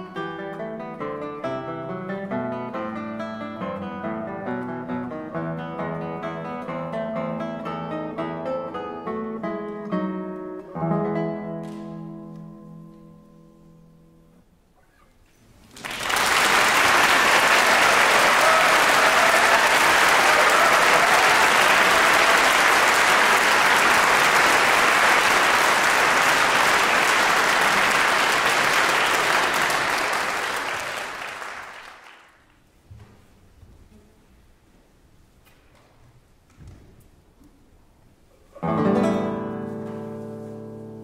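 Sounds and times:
audience applauding: 0:15.6 - 0:32.5
classical guitar note: 0:38.6 - 0:41.0.

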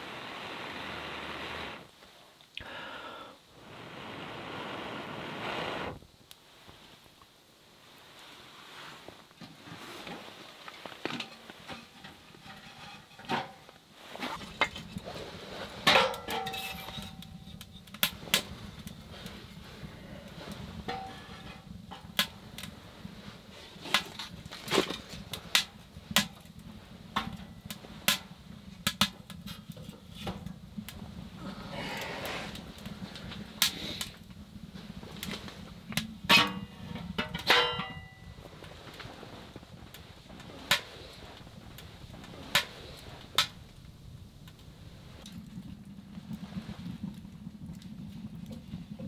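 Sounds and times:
low steady noise: 0:00.0 - 0:49.0
wood knocking on metal stove: 0:15.8 - 0:18.1, 0:20.8 - 0:22.7, 0:36.2 - 0:38.2.

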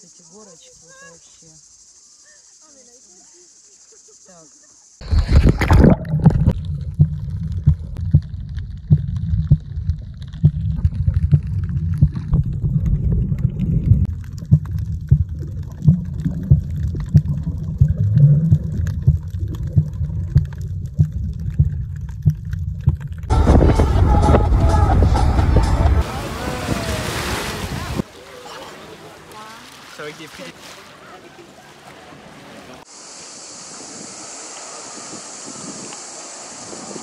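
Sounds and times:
splash into water: 0:05.0 - 0:07.1, 0:26.0 - 0:32.9
bubbly clicks and knocks underwater: 0:05.0 - 0:23.8
muffled underwater rumble: 0:05.0 - 0:28.0
rush of water noise: 0:23.3 - 0:37.0.

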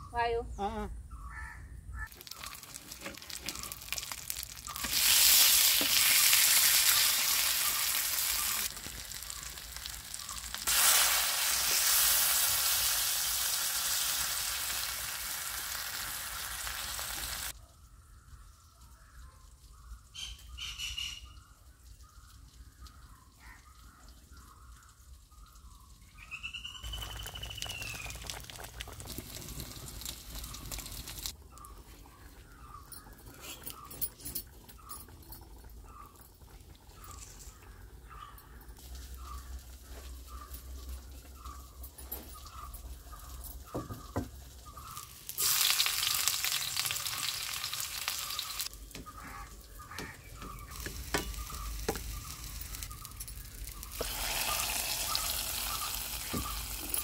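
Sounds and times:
food sizzling in hot oil: 0:02.1 - 0:17.6, 0:26.3 - 0:31.4, 0:42.4 - 0:48.8, 0:49.7 - 0:57.0.

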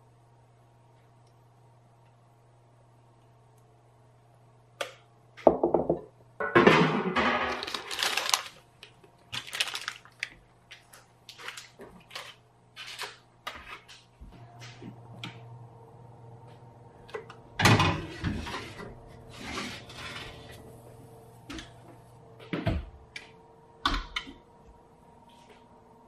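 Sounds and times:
paper rustling: 0:07.6 - 0:08.6, 0:09.3 - 0:14.0.

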